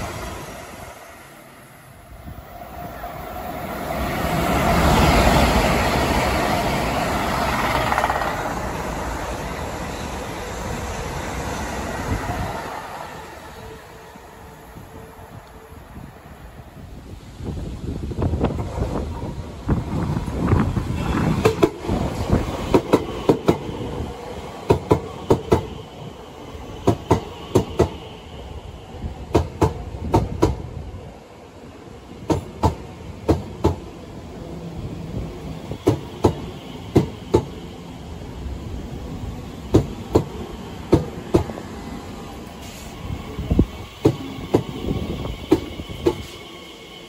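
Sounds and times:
electric train rumbling past: 0.0 - 47.0
wheels clicking over rail joints: 7.4 - 8.8.

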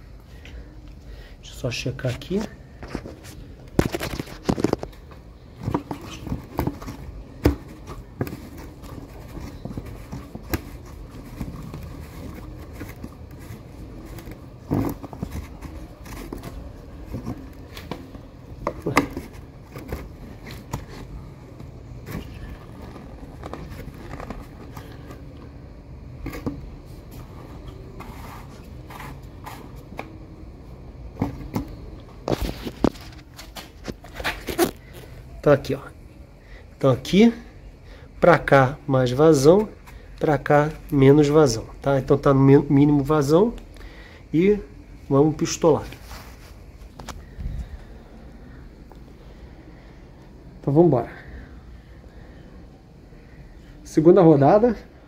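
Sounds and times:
plastic hose being handled: 2.0 - 30.4, 31.1 - 35.2.

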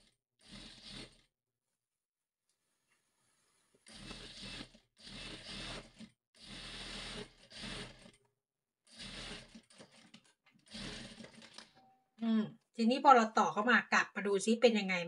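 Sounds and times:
sewing machine stitching: 0.0 - 1.3, 3.8 - 11.8.

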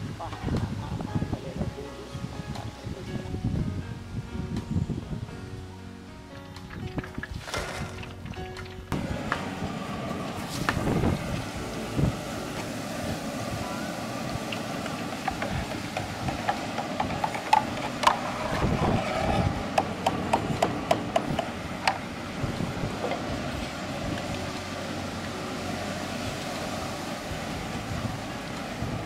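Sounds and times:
deep oil sizzling and bubbling: 7.2 - 29.0.

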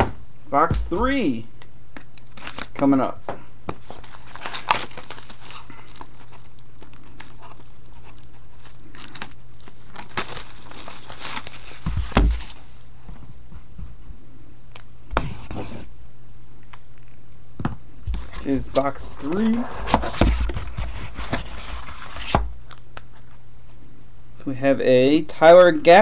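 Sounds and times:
steady low hum: 0.0 - 26.0
packaging crinkling and tearing: 2.2 - 2.8, 3.8 - 12.7.

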